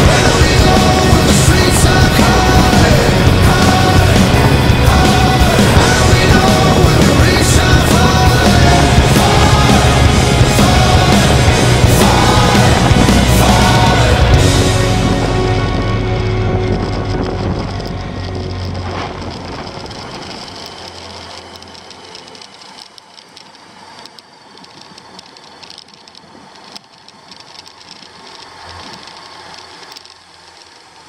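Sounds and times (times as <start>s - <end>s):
background music: 0.0s - 22.8s
motorcycle engine running: 0.0s - 31.0s.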